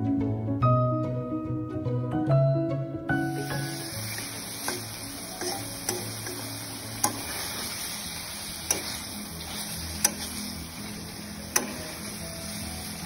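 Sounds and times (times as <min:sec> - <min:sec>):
chicken sizzling in oil: 0:03.3 - 0:13.0.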